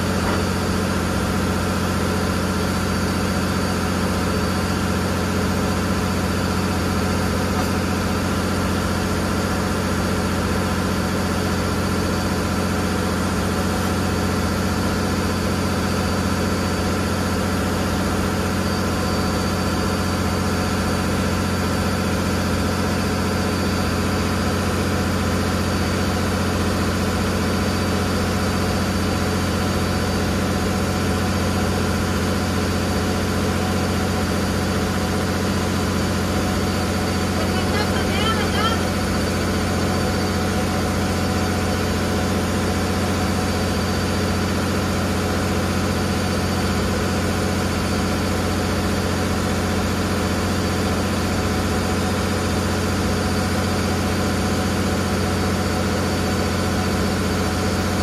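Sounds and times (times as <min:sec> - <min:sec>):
boat engine droning: 0:31.0 - 0:45.6.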